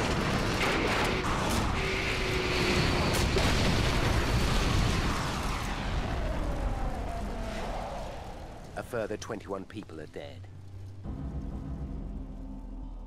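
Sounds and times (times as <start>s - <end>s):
explosion with low rumble: 2.8s - 8.8s, 11.0s - 13.0s.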